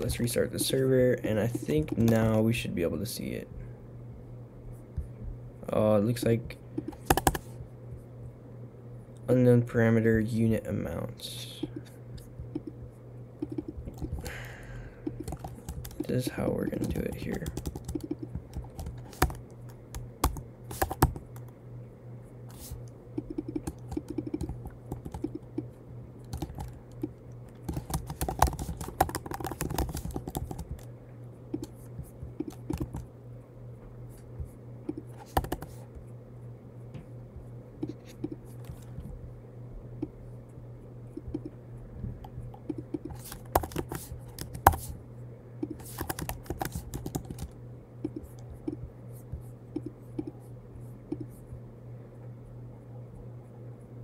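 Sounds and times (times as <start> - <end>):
steady low hum: 0.0 - 54.0
typing on a computer keyboard: 6.8 - 7.4, 15.1 - 16.1, 16.8 - 21.5, 23.2 - 25.6, 26.3 - 30.9, 32.4 - 33.1, 34.9 - 35.7, 42.7 - 44.8, 45.6 - 48.8.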